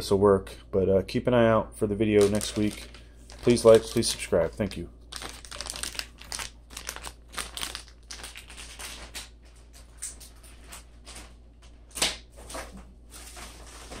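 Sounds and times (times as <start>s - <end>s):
low steady hum: 0.0s - 14.0s
plastic bag crinkling: 2.2s - 11.4s.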